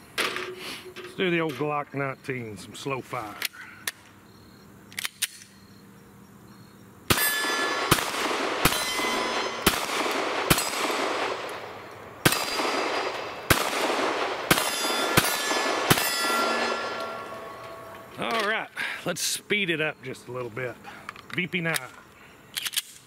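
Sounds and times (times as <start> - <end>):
steel plate ringing: 7.1 - 7.9, 8.6 - 9.8, 10.5 - 10.9, 14.5 - 18.2
pistol shots: 7.1 - 18.1.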